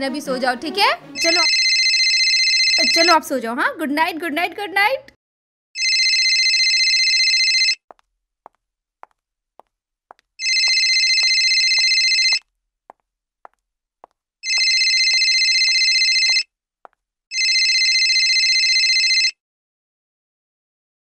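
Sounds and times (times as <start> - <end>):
mobile phone ringing: 1.2 - 3.2, 5.8 - 7.8, 10.4 - 12.4, 14.4 - 16.5, 17.3 - 19.4.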